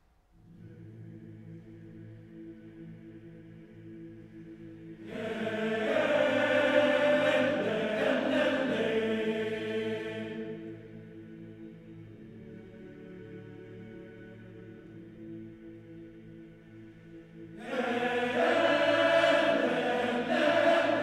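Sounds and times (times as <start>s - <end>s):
male choir humming drone chord: 0.4s - 21.0s
bright vocal line: 17.6s - 21.0s.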